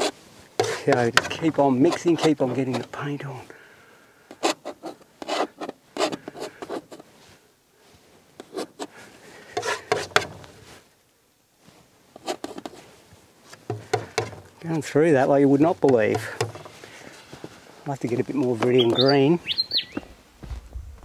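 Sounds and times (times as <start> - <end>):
palette knife scraping canvas: 0.0 - 3.0, 4.4 - 7.1, 8.4 - 10.6, 12.2 - 12.9.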